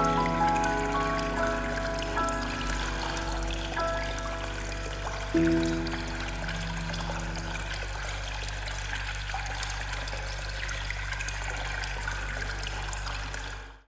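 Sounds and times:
low steady drone: 0.0 - 10.6
water trickling: 0.0 - 13.9.

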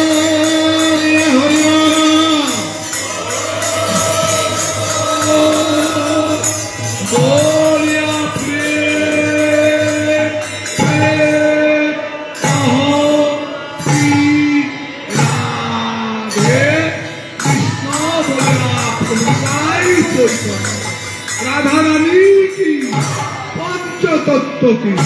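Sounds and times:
hand drums: 0.0 - 11.4, 12.3 - 24.2
voices singing a chant: 0.0 - 20.5
hand cymbals clashing: 0.0 - 25.0
harmonium: 0.0 - 25.0.

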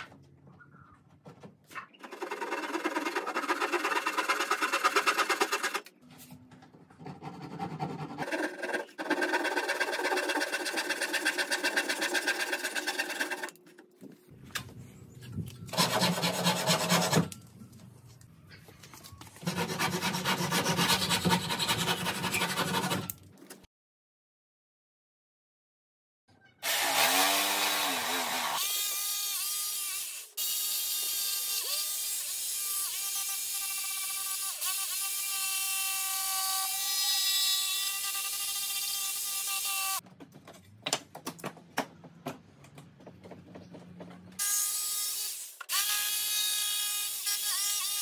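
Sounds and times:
jigsaw cutting wood: 2.1 - 5.9, 8.2 - 13.6, 26.6 - 30.2.

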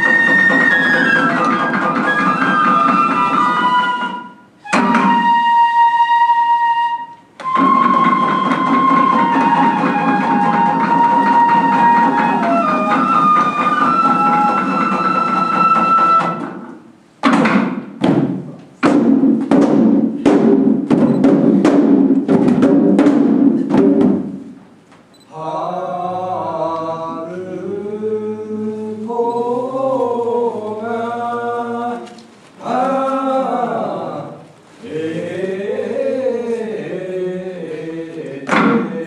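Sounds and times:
waist drums beating: 0.0 - 5.5, 7.4 - 24.6
bamboo flute melody: 0.0 - 16.8
voices singing in unison: 25.3 - 39.0.

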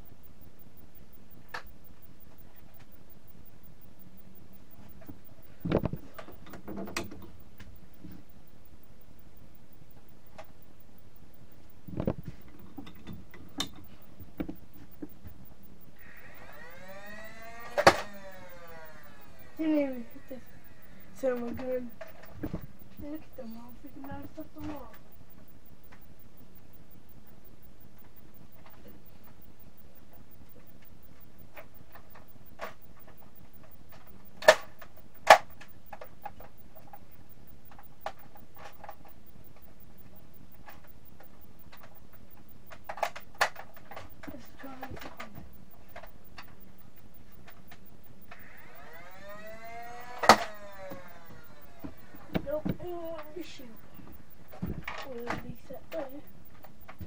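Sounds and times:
flywheel motor whine: 0.0 - 57.0
plastic clicks and knocks: 4.9 - 8.2
plastic toy blaster clacking: 16.3 - 20.2, 48.3 - 53.3.

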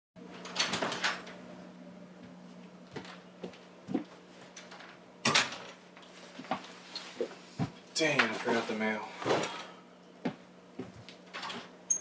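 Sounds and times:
faint steady hum: 0.2 - 12.0.

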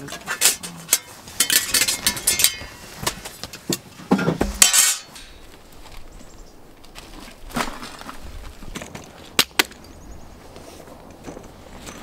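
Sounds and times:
metal tent stakes clinking: 0.0 - 5.6.

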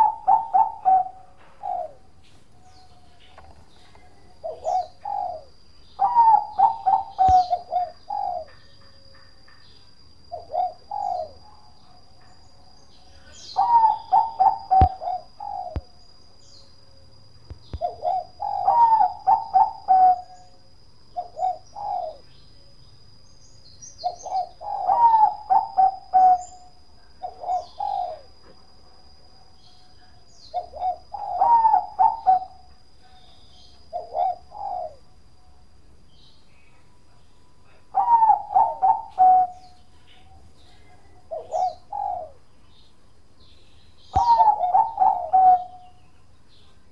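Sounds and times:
dove cooing: 0.0 - 2.8, 3.4 - 8.6, 10.3 - 11.6, 13.1 - 15.9, 17.7 - 20.6, 21.2 - 22.3, 24.0 - 28.4, 30.5 - 35.1, 37.7 - 42.5, 44.1 - 46.0.

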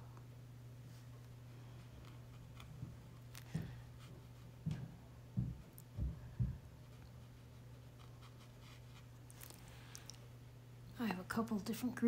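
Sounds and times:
steady low hum: 0.0 - 12.0
soft low thumps: 2.8 - 6.9.

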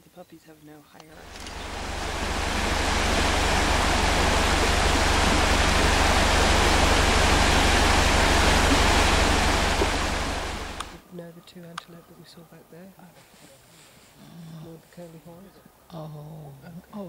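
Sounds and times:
low rumble: 1.2 - 11.0
river water rushing: 1.2 - 11.0.

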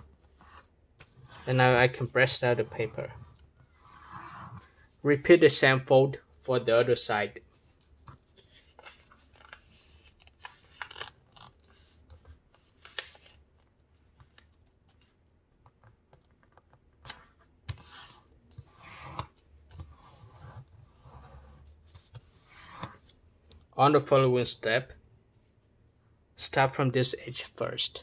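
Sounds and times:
paper being folded and creased: 7.4 - 15.2, 16.3 - 23.2.

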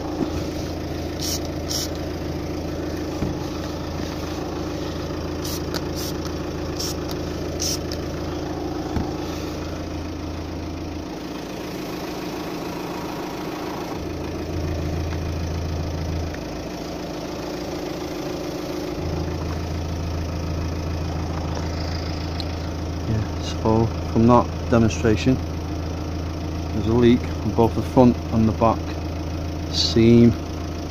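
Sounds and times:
car engine idling: 0.0 - 30.9
trigger spray bottle squirts: 1.2 - 2.0, 5.4 - 7.9.

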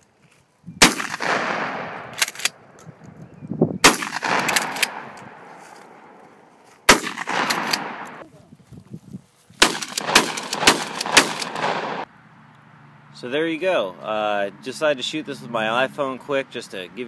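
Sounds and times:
shotgun blasts echoing: 0.8 - 2.3, 3.8 - 6.2, 6.9 - 8.2, 9.6 - 12.1.

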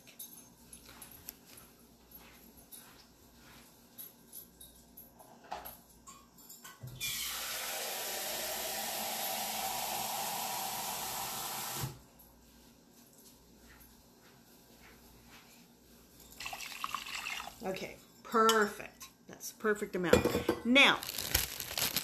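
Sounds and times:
tap water running: 7.0 - 12.0, 16.4 - 17.7.

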